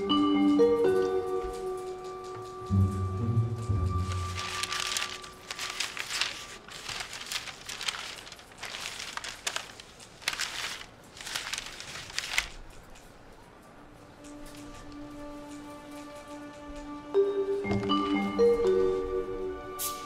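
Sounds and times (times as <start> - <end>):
newspaper pages rustling: 3.9 - 13.2.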